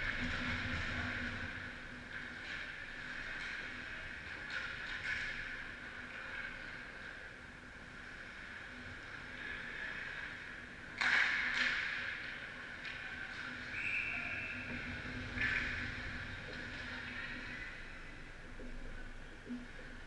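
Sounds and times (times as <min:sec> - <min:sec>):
ice rink ambience: 0:00.0 - 0:20.0
referee's whistle: 0:13.7 - 0:14.6.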